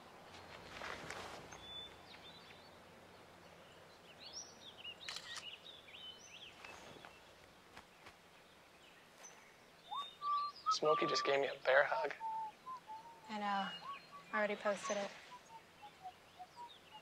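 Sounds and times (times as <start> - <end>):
birds chirping: 0.0 - 17.0
soft rustle: 0.2 - 2.6, 6.3 - 9.6, 14.4 - 15.6.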